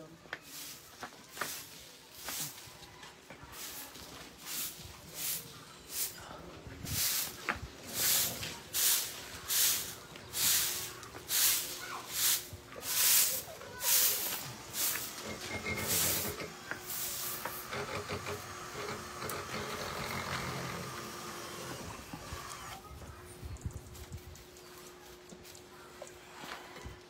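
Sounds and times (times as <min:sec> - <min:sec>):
sprayer hissing in short bursts: 0:06.9 - 0:17.7.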